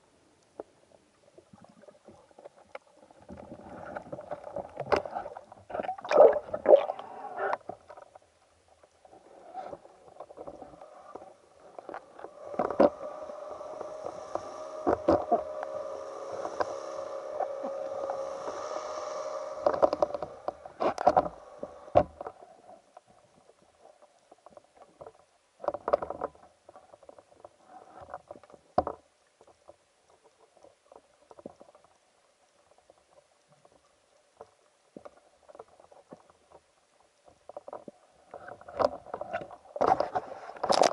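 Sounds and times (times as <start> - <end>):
muffled underwater knocks and clicks: 1.7 - 9.0, 9.6 - 17.8, 19.6 - 32.0, 34.4 - 40.9
steady hum: 10.3 - 23.0.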